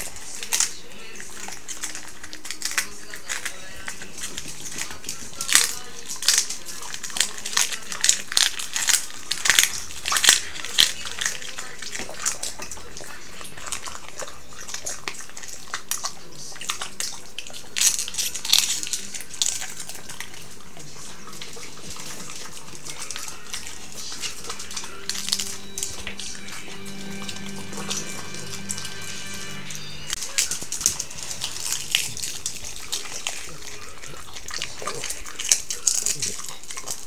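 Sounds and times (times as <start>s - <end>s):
dog crunching cabbage leaf: 0.0s - 37.0s.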